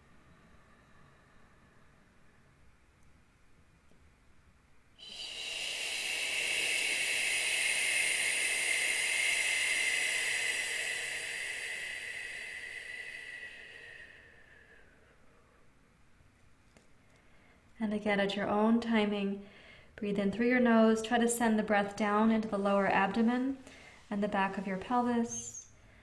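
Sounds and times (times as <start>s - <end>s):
woman exhaling slowly through mouth: 5.0s - 15.7s.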